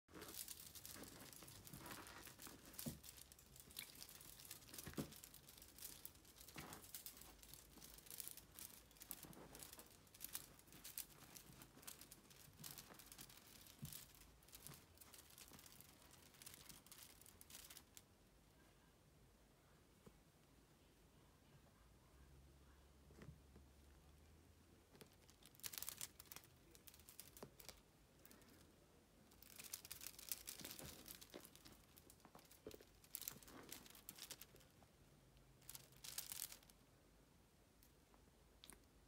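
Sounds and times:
claws clicking: 0:00.1 - 0:18.0, 0:24.9 - 0:28.6, 0:29.3 - 0:34.8, 0:35.6 - 0:36.7.

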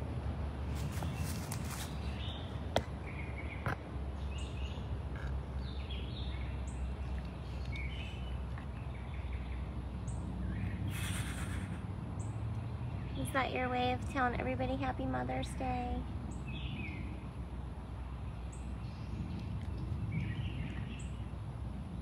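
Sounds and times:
birds chirping: 0:00.8 - 0:17.3, 0:18.2 - 0:21.4
breathy burst of noise: 0:10.9 - 0:11.9.

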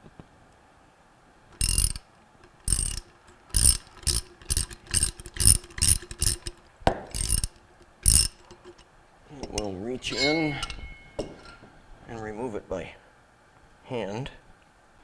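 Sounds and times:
ratchet wrench clicking: 0:01.6 - 0:08.8.

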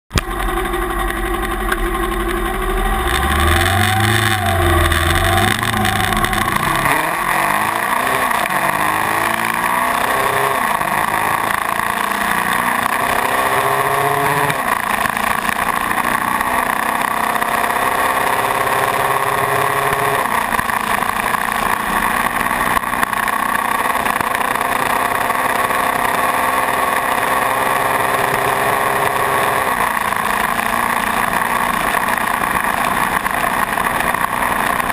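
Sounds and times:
motorcycle engine accelerating: 0:00.1 - 0:34.9.

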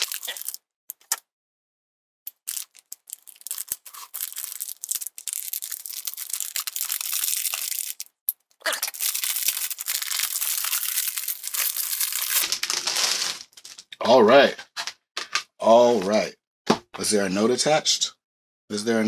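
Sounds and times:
packing tape tearing: 0:00.0 - 0:01.2, 0:02.3 - 0:08.1, 0:08.7 - 0:13.9.

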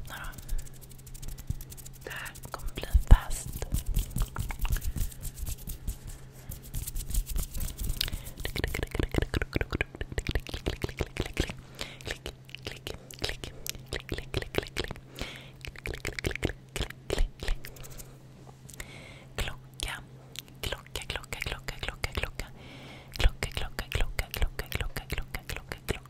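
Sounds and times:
steady low hum: 0:00.0 - 0:26.0
mouth sounds: 0:01.9 - 0:05.0, 0:07.8 - 0:18.1.

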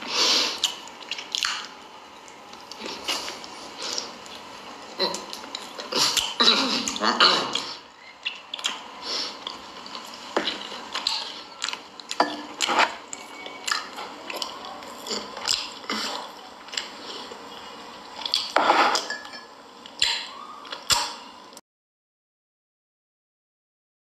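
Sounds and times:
wet chewing and lip-smacking: 0:00.6 - 0:01.7, 0:05.1 - 0:12.2, 0:13.1 - 0:17.4, 0:18.1 - 0:18.6, 0:19.9 - 0:21.2.

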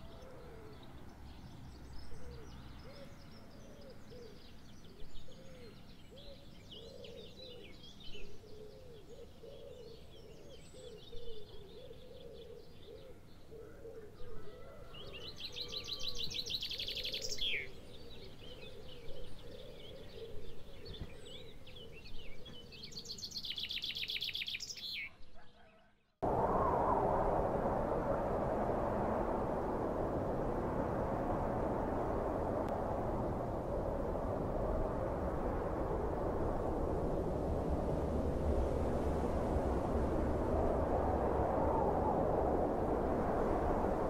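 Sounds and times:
low wavering bird calls: 0:00.0 - 0:01.0, 0:01.9 - 0:26.0
bird chirps and trills: 0:00.0 - 0:25.9
steady rushing noise: 0:26.2 - 0:44.0.

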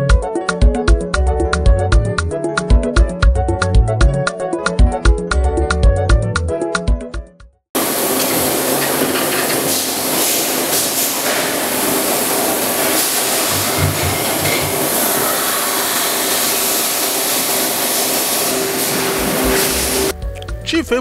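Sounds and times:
machine hissing: 0:07.8 - 0:20.1.

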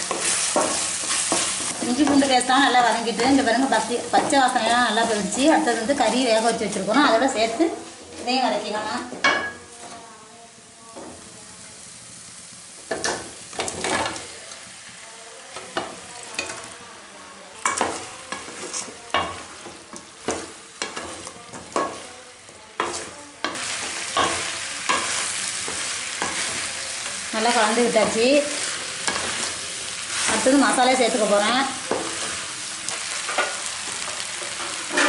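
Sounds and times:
food sizzling in a pan: 0:00.0 - 0:35.0.

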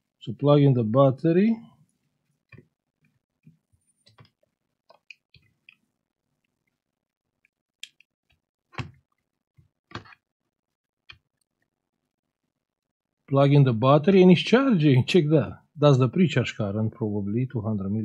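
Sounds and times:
plastic clicks and knocks: 0:08.8 - 0:09.2, 0:09.9 - 0:10.2.

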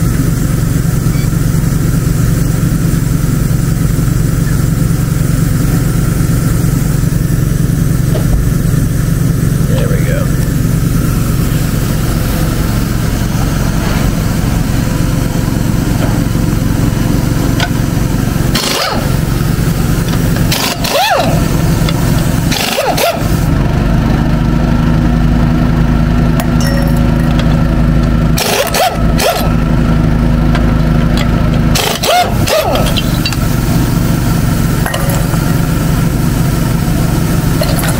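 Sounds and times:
engine drone: 0:00.0 - 0:37.9
pneumatic impact wrench bursts: 0:17.5 - 0:23.5, 0:28.4 - 0:29.6, 0:31.7 - 0:35.8.

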